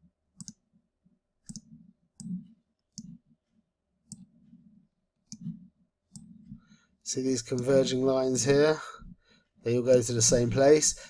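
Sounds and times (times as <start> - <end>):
computer mouse clicking: 0.4 - 0.7, 1.4 - 3.3, 4.0 - 4.6, 5.2 - 6.6.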